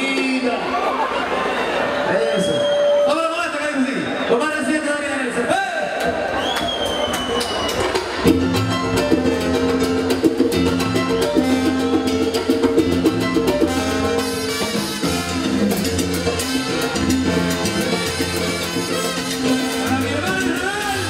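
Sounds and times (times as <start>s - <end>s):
timbales and congas: 6.1s - 21.0s
live salsa band: 6.2s - 21.0s
trombones: 8.2s - 21.0s.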